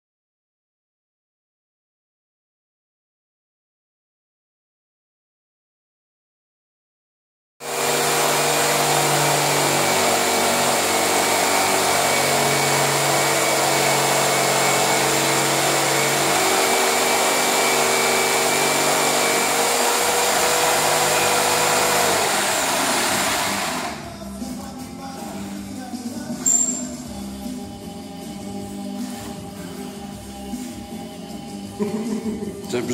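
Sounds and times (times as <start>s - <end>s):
jigsaw cutting plasterboard: 7.6s - 24.0s.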